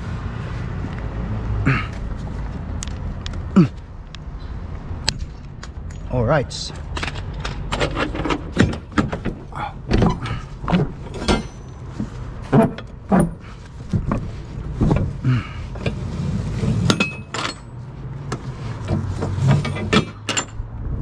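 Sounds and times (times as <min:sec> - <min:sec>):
metal door latches clanking: 0:06.8 - 0:11.8, 0:16.8 - 0:17.7, 0:19.4 - 0:20.6.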